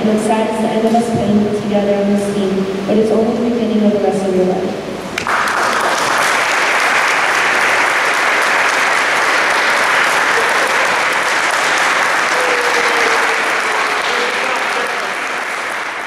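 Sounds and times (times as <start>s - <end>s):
crowd clapping: 5.1s - 16.0s.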